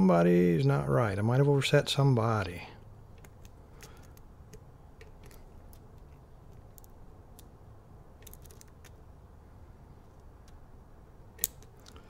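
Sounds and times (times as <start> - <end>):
lock pick clicking in lock: 11.4 - 12.0.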